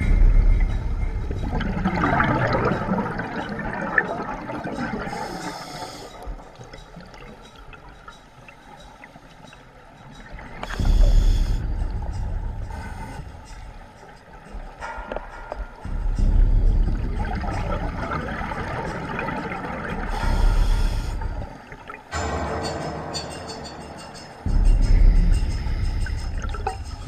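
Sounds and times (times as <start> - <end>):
regulator hiss: 5.1 - 6.2, 10.7 - 13.6, 20.1 - 21.4.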